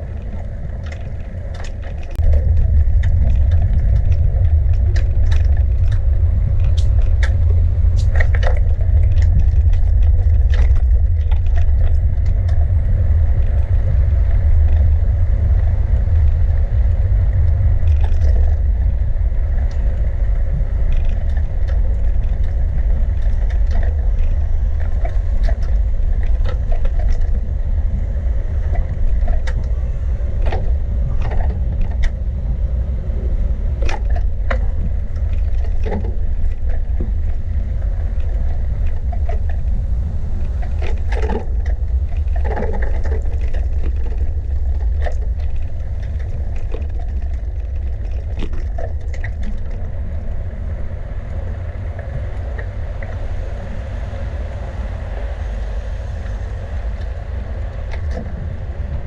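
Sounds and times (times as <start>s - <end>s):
bicycle clicks and rattles: 0.0s - 12.7s, 17.4s - 27.6s
wind rumble on microphone: 0.0s - 59.0s.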